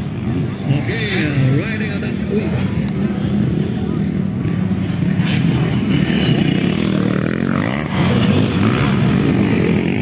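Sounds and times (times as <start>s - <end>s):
motorcycle engines revving: 0.0s - 10.0s.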